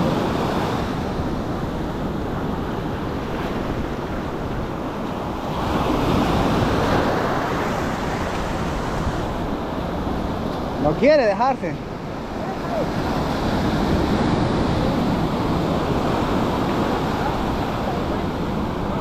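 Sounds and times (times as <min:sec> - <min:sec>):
ocean surf breaking: 0:00.0 - 0:19.0
wind buffeting microphone: 0:11.8 - 0:19.0.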